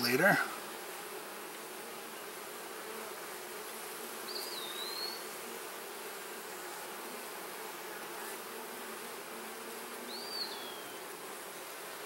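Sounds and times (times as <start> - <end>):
honeybees buzzing: 0.0 - 12.0
bird whistled call: 4.4 - 5.2, 10.1 - 11.0.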